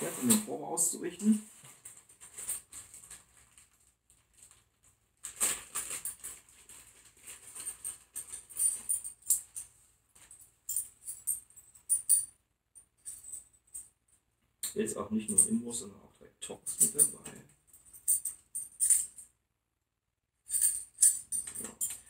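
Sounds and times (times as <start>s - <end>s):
plastic packaging crinkling: 1.5s - 8.4s
metal keys clicking and rattling: 10.7s - 12.3s, 16.6s - 19.2s, 20.5s - 22.0s.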